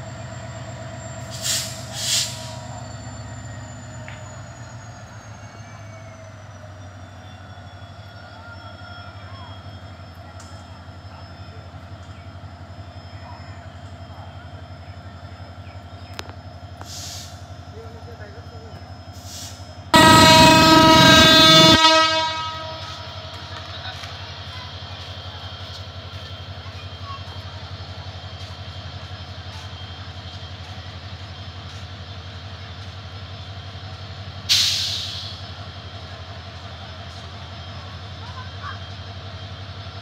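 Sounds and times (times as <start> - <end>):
locomotive engine humming: 0.0 - 40.0
locomotive horn blast: 20.0 - 23.9.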